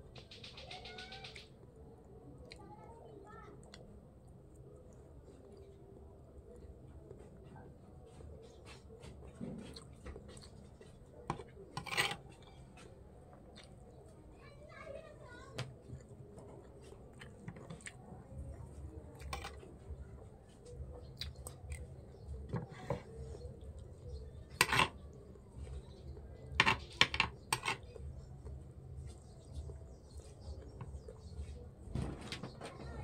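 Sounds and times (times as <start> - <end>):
soft chewing: 1.4 - 31.9
cutlery clinking on a plate: 11.3 - 12.2, 24.6 - 25.0.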